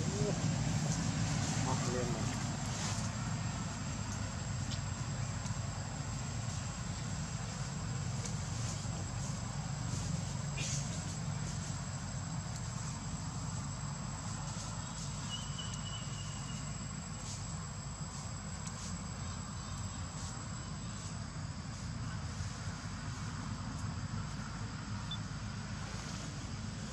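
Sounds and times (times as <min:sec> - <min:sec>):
low steady rumble: 0:00.0 - 0:26.9
high-pitched insect whine: 0:01.4 - 0:23.3
thin whistle: 0:15.3 - 0:16.7.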